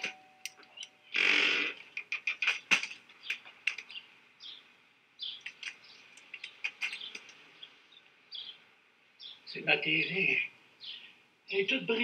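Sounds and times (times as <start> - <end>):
sharp clicks: 0.0 - 4.0, 5.4 - 7.4
small birds chirping: 0.0 - 12.0.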